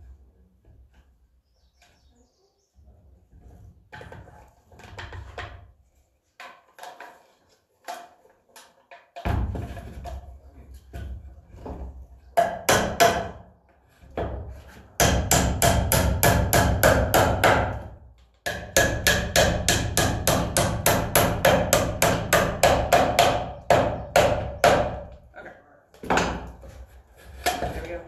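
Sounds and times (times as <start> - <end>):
hammer hitting nails into wood: 12.4 - 13.4, 15.0 - 25.2.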